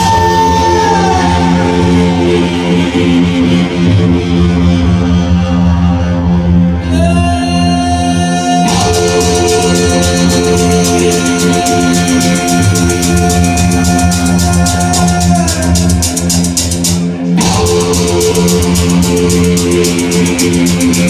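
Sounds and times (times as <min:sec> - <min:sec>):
loud electronic music: 0:00.0 - 0:21.0
fast high ticking rhythm: 0:08.7 - 0:21.0.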